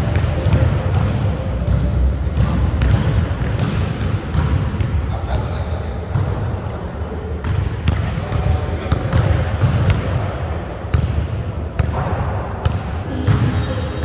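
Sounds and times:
players' voices: 0:03.9 - 0:14.0.

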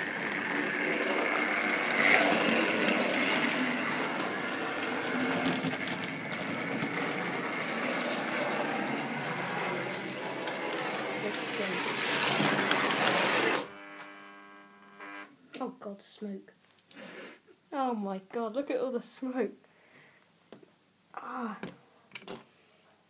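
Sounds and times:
wheels rattling on rails: 0:00.0 - 0:13.6
model train motor whirring: 0:00.0 - 0:13.7.

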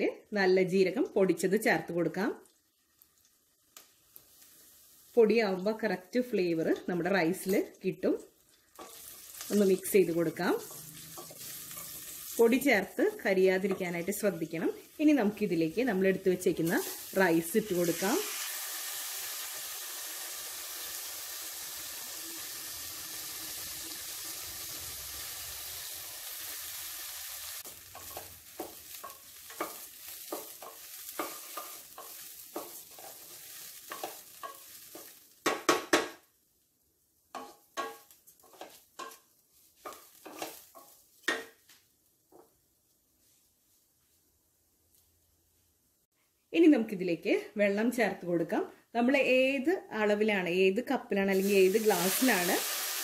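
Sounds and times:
rice sizzling in ghee: 0:01.0 - 0:35.9, 0:37.2 - 0:41.7, 0:51.2 - 0:53.0.

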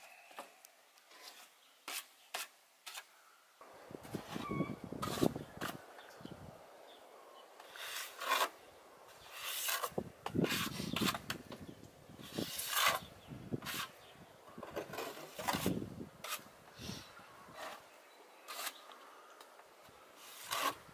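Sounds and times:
trowel scraping mortar on wall: 0:01.1 - 0:03.1, 0:04.4 - 0:05.8, 0:07.6 - 0:11.4, 0:12.2 - 0:16.5, 0:17.5 - 0:18.9, 0:20.2 - 0:20.9.

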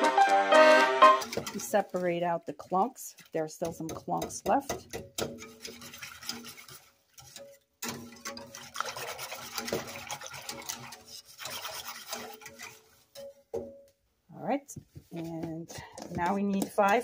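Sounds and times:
whisk scraping metal pot: 0:00.0 - 0:13.8, 0:15.1 - 0:17.0.

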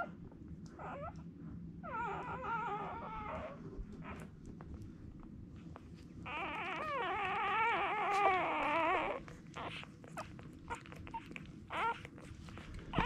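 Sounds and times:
puppy crying: 0:01.8 - 0:04.3, 0:06.2 - 0:13.0.

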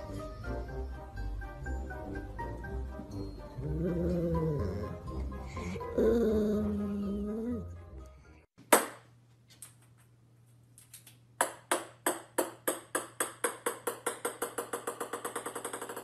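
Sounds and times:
table tennis ball bouncing on wood: 0:11.4 - 0:16.0.

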